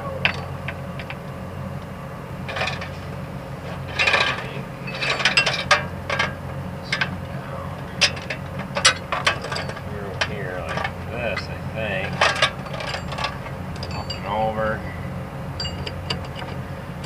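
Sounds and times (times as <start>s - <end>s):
steady low hum: 0.0s - 17.0s
chain links clinking and rattling: 3.9s - 6.3s, 8.0s - 9.9s, 10.7s - 14.6s, 15.6s - 16.6s.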